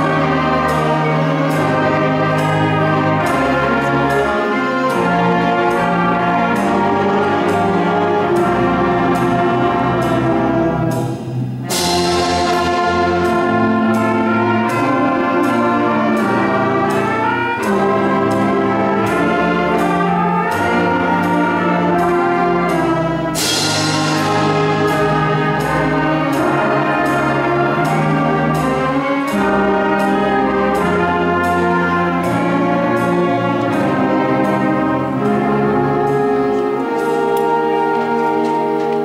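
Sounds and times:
concert band playing: 0:00.0 - 0:39.0
cymbal crash: 0:10.9 - 0:13.4, 0:23.4 - 0:25.8.

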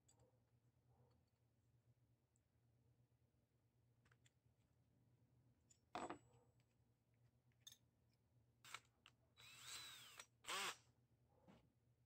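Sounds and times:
cordless drill spinning: 0:09.4 - 0:10.8.

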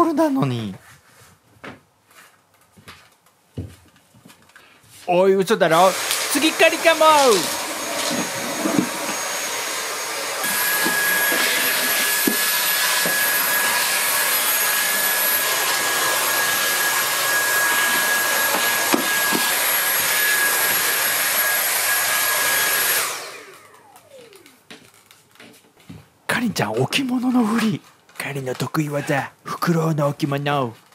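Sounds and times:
cordless vacuum whining: 0:05.7 - 0:25.4.

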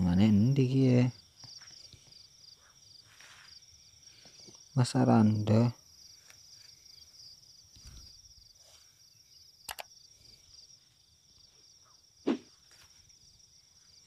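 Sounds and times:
cricket chirping trill: 0:00.0 - 0:14.0
sharp double click: 0:09.7 - 0:09.9.

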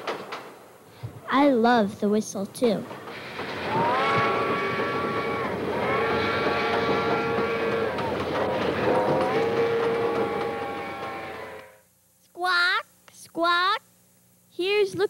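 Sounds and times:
train rumbling on track: 0:02.6 - 0:11.6
steam train whistle blasts: 0:03.3 - 0:11.8.

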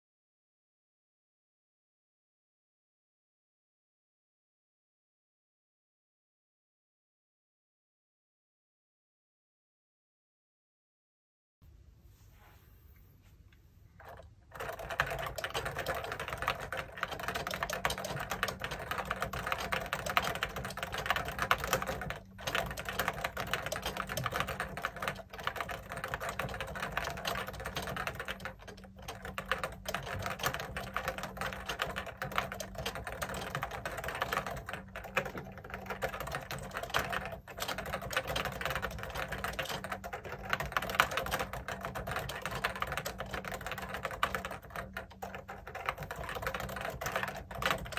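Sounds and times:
keyboard typing: 0:14.0 - 0:47.9.

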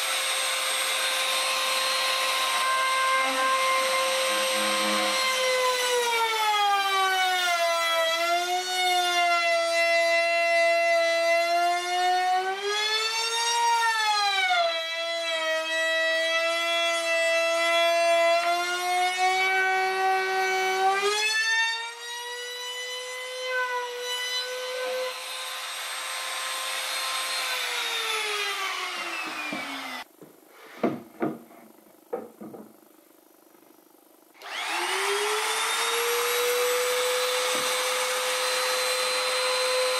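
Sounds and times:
trim router whining: 0:00.0 - 0:08.9, 0:21.8 - 0:30.1, 0:34.4 - 0:39.9
knocks: 0:30.8 - 0:31.5, 0:32.1 - 0:32.7.

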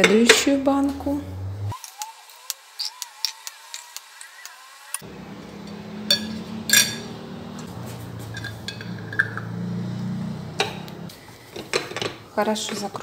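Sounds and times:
ladle clinking on glass jar: 0:06.1 - 0:07.1, 0:08.3 - 0:09.5.

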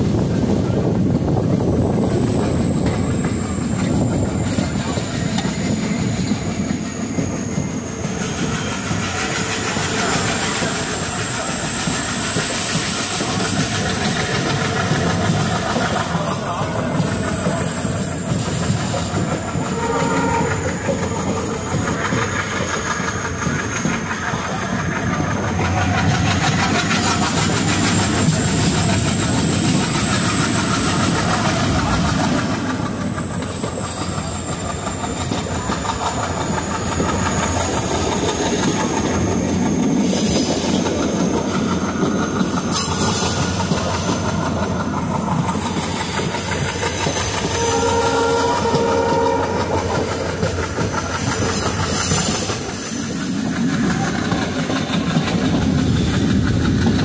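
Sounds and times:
train wheels clattering on rails: 0:00.0 - 0:57.0
train horn: 0:19.5 - 0:21.1, 0:47.4 - 0:50.1.

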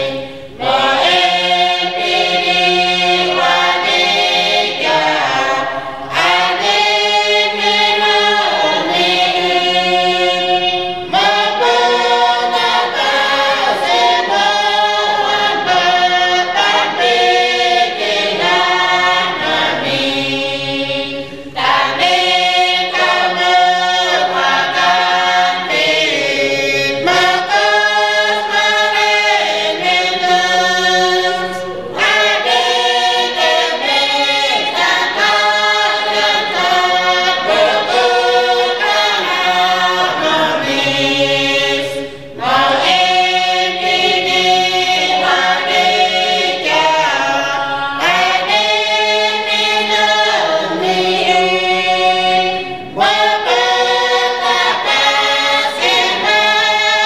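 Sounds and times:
choir singing unaccompanied: 0:00.0 - 0:57.0.

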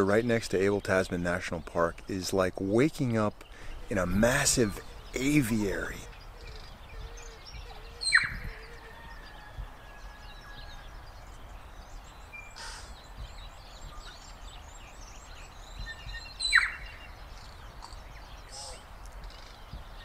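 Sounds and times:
background hiss: 0:00.0 - 0:07.4, 0:10.9 - 0:20.0
birdsong chirps and whistles: 0:00.0 - 0:20.0.

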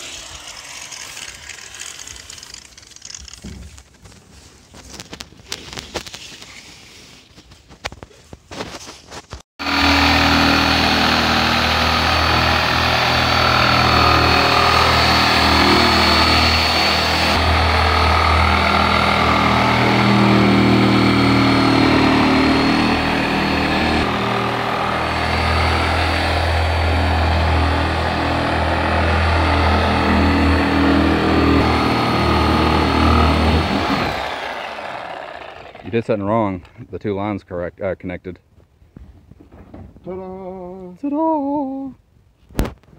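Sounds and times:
power tool whining cutting plastic: 0:00.0 - 0:03.5, 0:09.6 - 0:36.0.

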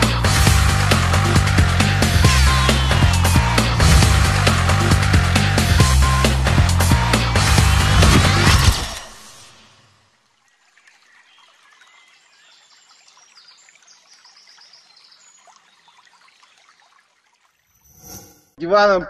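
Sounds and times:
music: 0:00.0 - 0:09.0
water trickling: 0:09.1 - 0:17.9.

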